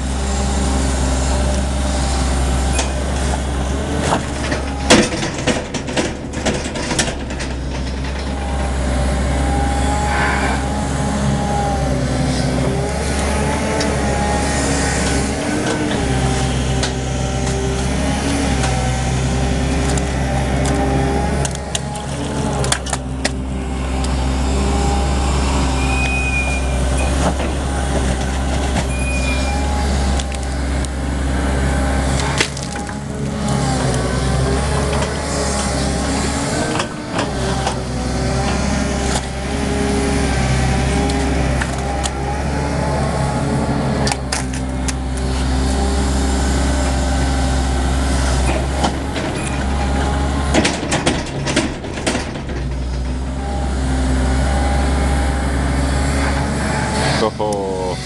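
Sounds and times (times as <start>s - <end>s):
excavator diesel engine under load: 0.0s - 58.0s
hydraulic whine: 0.0s - 58.0s
clattering knocks: 4.0s - 8.9s, 48.4s - 53.4s.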